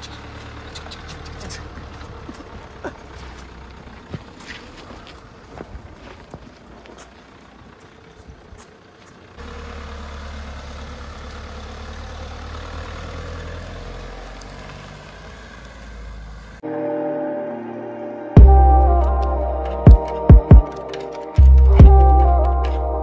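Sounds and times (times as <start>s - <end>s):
vehicle engine running: 0.0s - 16.7s, 18.4s - 23.0s
low rumble: 18.4s - 20.7s.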